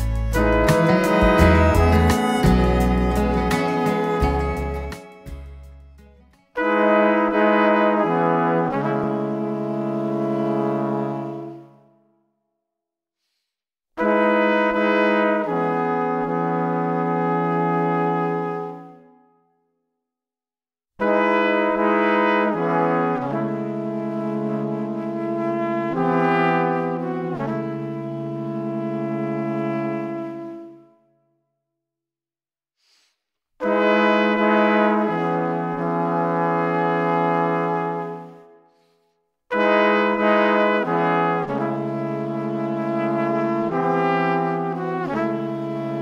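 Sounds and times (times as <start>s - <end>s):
slow held music chords: 0.0s - 5.8s.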